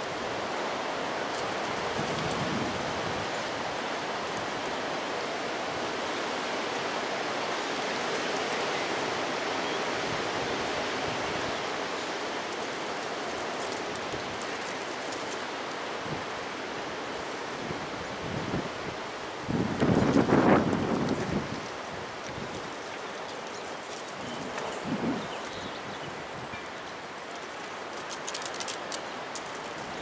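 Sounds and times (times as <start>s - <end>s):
wind rushing through trees: 0.0s - 30.0s.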